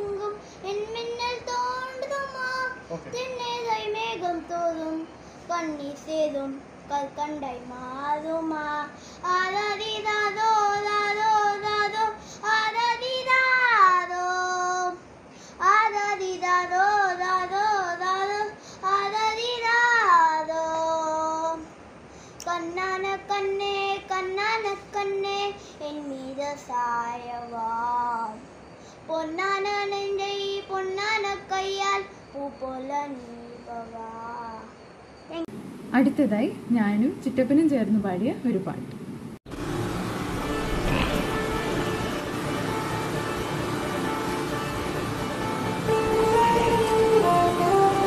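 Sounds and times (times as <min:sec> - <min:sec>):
boy singing: 0:00.0 - 0:15.0, 0:15.6 - 0:21.7, 0:22.4 - 0:28.4, 0:29.1 - 0:35.4.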